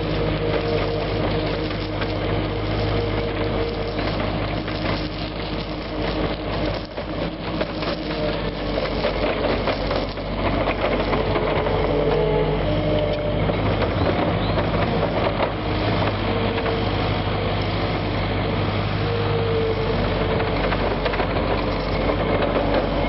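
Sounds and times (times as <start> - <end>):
gravel pouring from bucket: 0.0 - 11.5
diesel engine running: 0.0 - 23.0.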